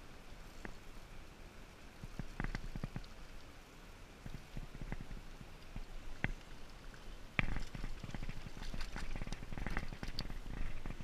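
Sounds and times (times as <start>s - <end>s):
creek rushing: 0.0s - 11.0s
rustling near microphone: 4.2s - 11.0s.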